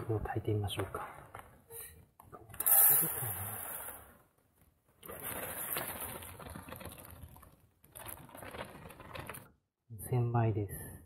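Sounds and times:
rice poured into metal tin: 0:05.0 - 0:09.4.

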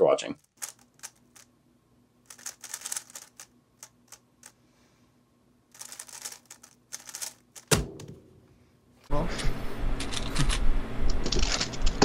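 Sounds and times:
plastic puzzle clicking: 0:00.5 - 0:01.4, 0:02.3 - 0:04.5, 0:05.7 - 0:07.7
heavy thump: 0:07.7 - 0:08.5.

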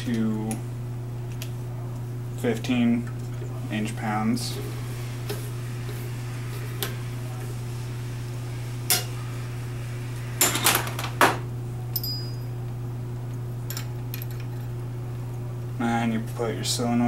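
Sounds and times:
steady low hum: 0:00.0 - 0:17.0
ringing metal clink: 0:11.9 - 0:12.6.

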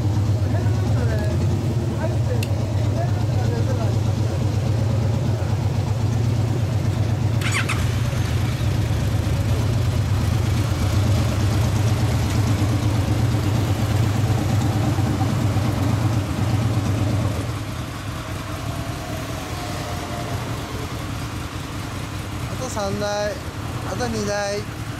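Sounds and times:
motorcycle engine idling: 0:00.0 - 0:24.9.

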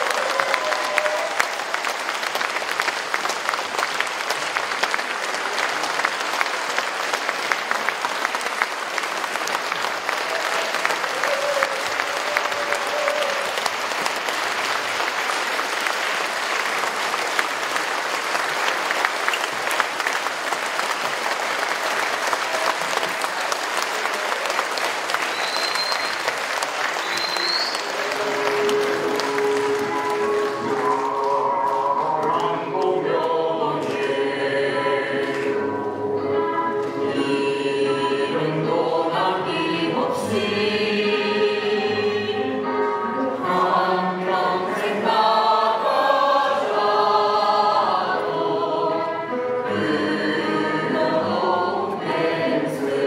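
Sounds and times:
audience applauding: 0:00.0 - 0:34.2.

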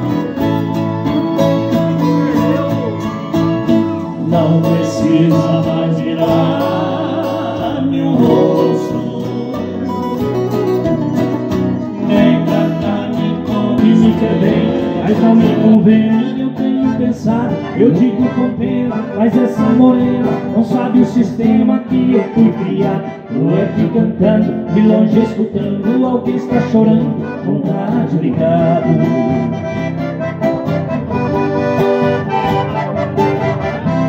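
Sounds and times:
acoustic guitars strummed and picked: 0:00.0 - 0:34.0.

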